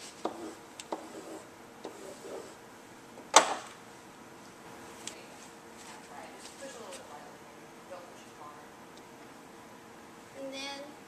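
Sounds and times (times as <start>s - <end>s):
pen tapping on whiteboard: 0.2s - 2.0s.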